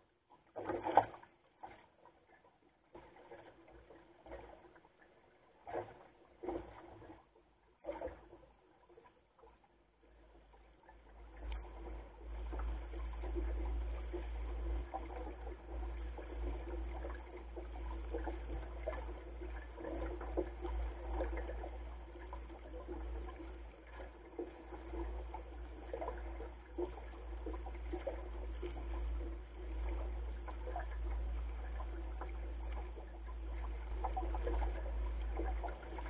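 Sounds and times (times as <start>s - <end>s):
water splashing along hull: 0.0s - 36.0s
low rumble: 10.2s - 36.0s.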